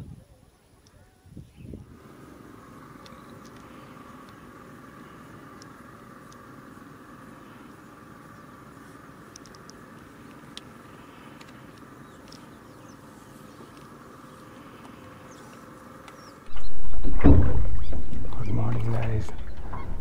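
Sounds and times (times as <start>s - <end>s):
boat engine rumble: 0.0s - 20.0s
faint high bird chirps: 11.0s - 18.6s.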